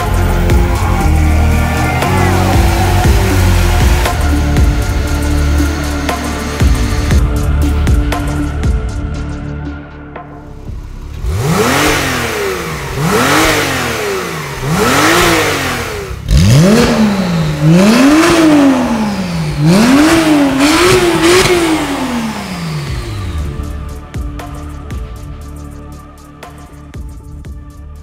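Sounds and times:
sports car engine revving: 0:00.0 - 0:07.7, 0:10.8 - 0:24.7.

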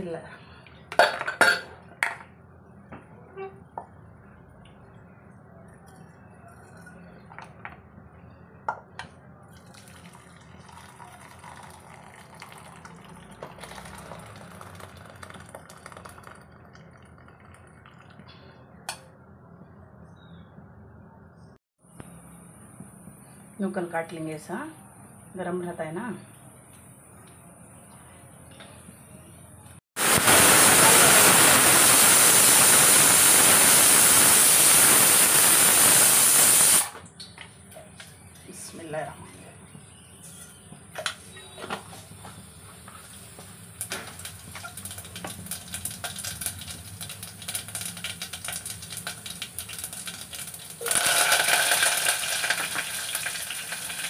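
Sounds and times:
water pouring into metal pot: 0:09.6 - 0:18.3, 0:44.2 - 0:54.0.

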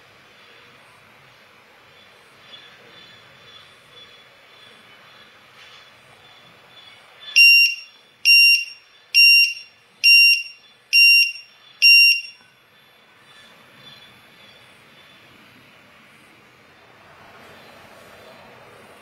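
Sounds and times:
shrill piezo buzzer beeps: 0:07.3 - 0:12.4.

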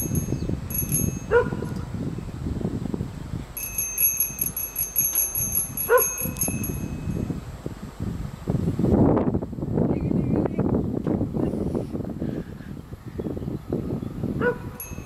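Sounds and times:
level-crossing warning bell: 0:00.0 - 0:01.4, 0:03.6 - 0:07.4, 0:14.8 - 0:15.0
wind rumbling on microphone: 0:00.0 - 0:15.0
dog barking: 0:01.3 - 0:01.7, 0:05.9 - 0:06.4, 0:14.4 - 0:14.8.

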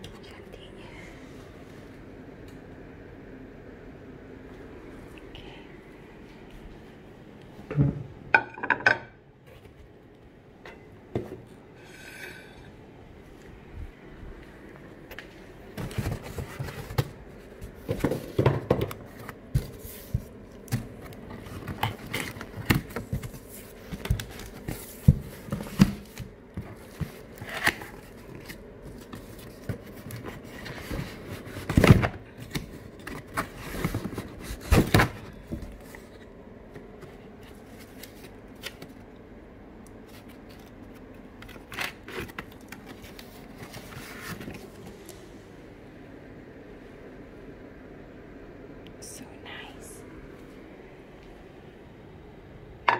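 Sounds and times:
cardboard boxes being handled: 0:15.7 - 0:36.3.

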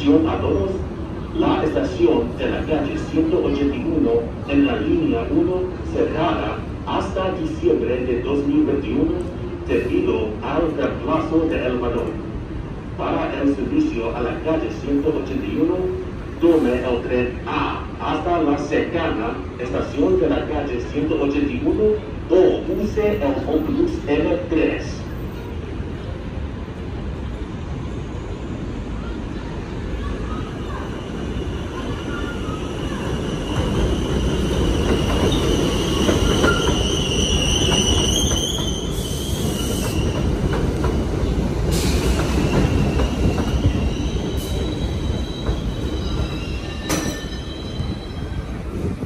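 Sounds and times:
train wheel-on-rail rumble: 0:00.0 - 0:49.0
high squeal of wheels and brakes: 0:30.2 - 0:40.3, 0:41.7 - 0:48.6.

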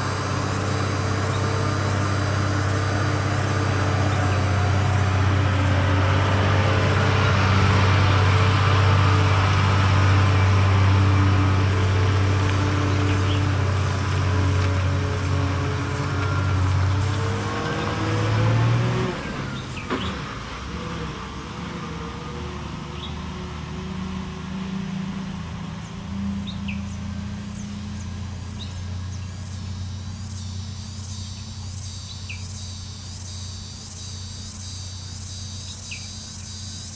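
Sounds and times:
insect pulsing call: 0:00.0 - 0:07.0, 0:26.3 - 0:36.9
lorry diesel engine pulling uphill: 0:00.0 - 0:36.9
bird chirps: 0:12.9 - 0:13.5, 0:26.4 - 0:29.6, 0:30.2 - 0:36.9.

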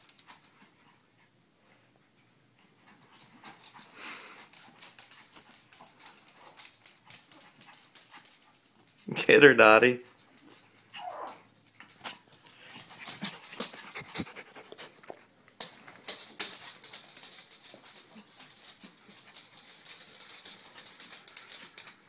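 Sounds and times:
small dogs panting: 0:00.0 - 0:09.1, 0:10.1 - 0:15.3
dog whining: 0:10.9 - 0:11.5.

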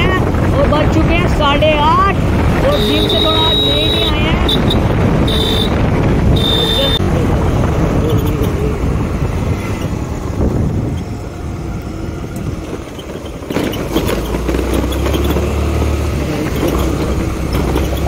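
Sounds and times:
motorcycle engine running: 0:00.0 - 0:18.0
road noise: 0:00.0 - 0:18.0.

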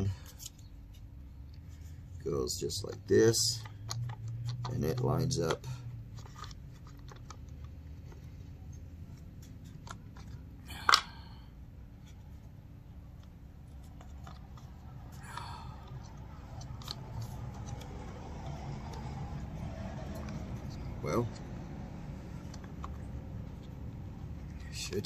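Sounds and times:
plastic parts clicking and tapping: 0:02.7 - 0:11.2, 0:13.2 - 0:23.8.

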